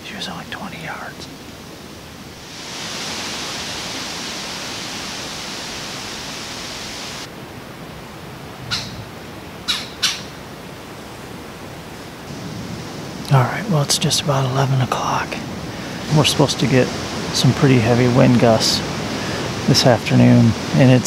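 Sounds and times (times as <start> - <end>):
wind rushing through leaves: 0.0 - 21.0
harsh bird calls: 8.7 - 9.0.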